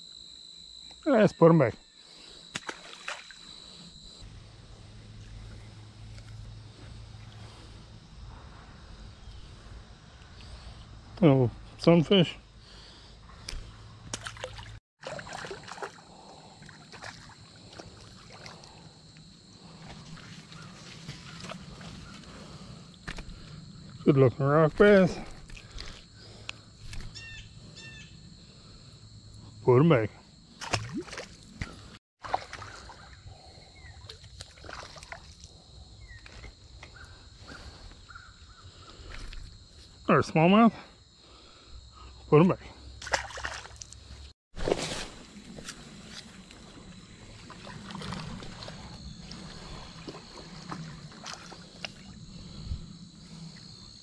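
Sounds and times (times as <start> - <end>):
high insect drone: 0.0 - 44.3, 45.2 - 54.0
fish splashing into water: 2.5 - 3.4, 14.1 - 18.6, 30.6 - 33.2, 34.1 - 35.4, 43.0 - 44.0, 44.6 - 45.3
creek trickling and sloshing: 2.5 - 3.7, 13.5 - 23.4, 24.8 - 26.1, 30.6 - 36.6, 43.0 - 53.7
faint splashing: 14.1 - 18.9, 30.6 - 35.6, 43.0 - 44.0, 47.2 - 52.2.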